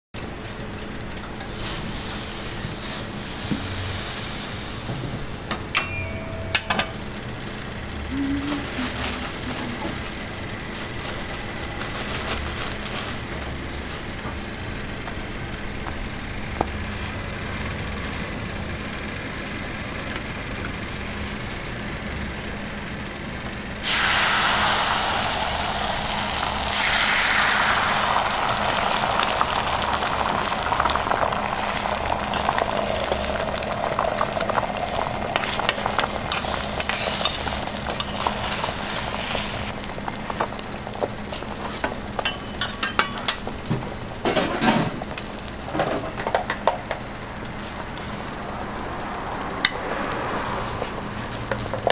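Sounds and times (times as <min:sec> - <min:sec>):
oil sizzling on griddle: 0:01.2 - 0:08.0, 0:23.8 - 0:51.9
egg sizzling loudly: 0:01.3 - 0:07.8, 0:23.8 - 0:44.2, 0:44.9 - 0:51.9
oil crackling spits: 0:23.8 - 0:42.0
low hum: 0:24.2 - 0:38.9.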